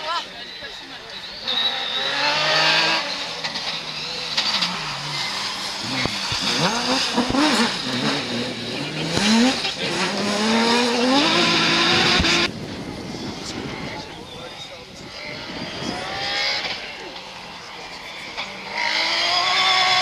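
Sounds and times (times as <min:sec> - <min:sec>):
car engine revving: 0:00.0 - 0:20.0
tyre and road noise: 0:00.0 - 0:20.0.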